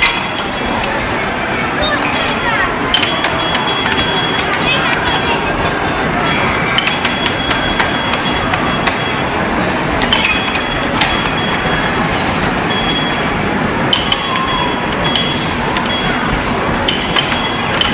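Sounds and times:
air hockey puck clacks: 16.8s - 17.9s.

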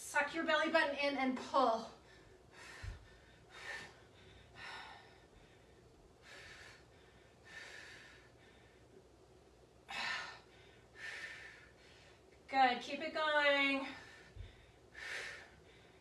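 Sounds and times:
woman breathing: 1.9s - 9.1s, 9.8s - 12.4s, 13.8s - 16.0s.

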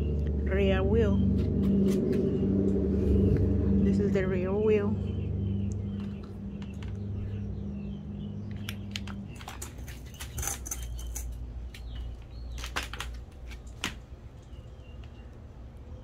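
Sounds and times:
low steady hum: 0.0s - 16.0s
stroller plastic parts clicking: 8.5s - 14.6s.

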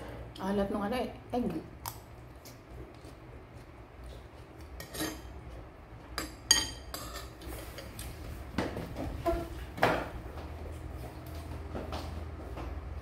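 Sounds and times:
spoon clinking on ceramic bowl: 6.2s - 7.3s.

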